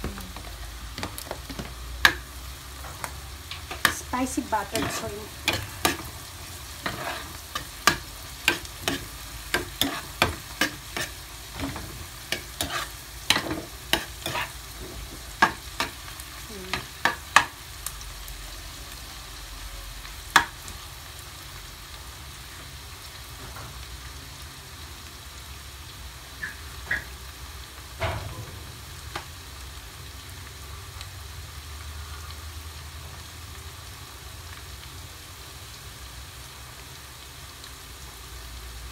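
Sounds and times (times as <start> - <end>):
food sizzling in a wok: 0.0 - 38.9
metal spoon scraping a pan: 3.6 - 16.1.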